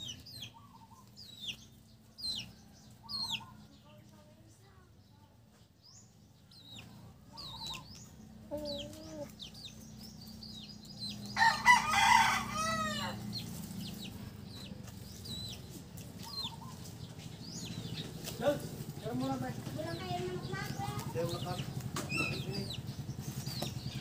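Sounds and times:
small birds chirping: 0.0 - 24.0
rooster crowing: 11.3 - 13.3.

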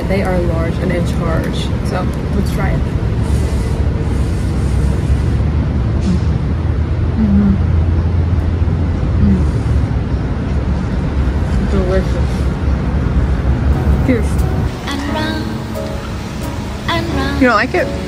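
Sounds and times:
road traffic rumble: 0.0 - 18.0
person humming while eating: 7.2 - 7.7.

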